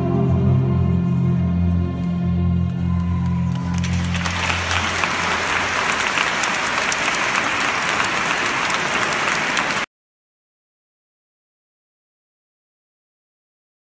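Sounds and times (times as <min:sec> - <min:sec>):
audience applauding: 0:03.0 - 0:09.9.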